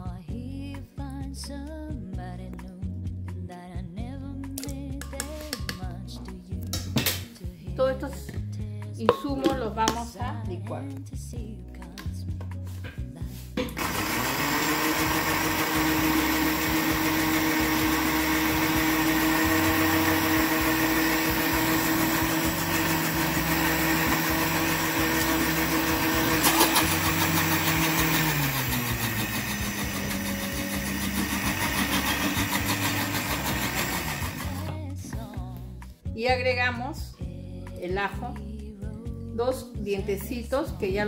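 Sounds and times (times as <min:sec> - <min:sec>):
blender motor running: 0:13.8 - 0:34.7.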